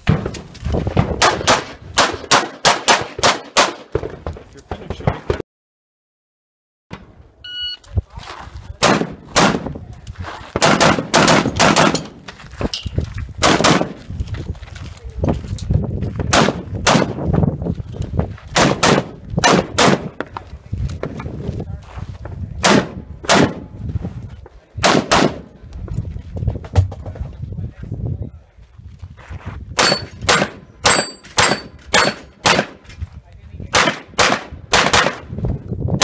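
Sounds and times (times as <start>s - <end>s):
rifle shots: 1.2s - 4.1s, 8.8s - 9.7s, 10.6s - 12.2s, 13.4s - 14.0s, 16.3s - 17.2s, 18.5s - 20.3s, 22.6s - 23.7s, 24.8s - 25.5s, 29.8s - 32.8s, 33.7s - 35.3s.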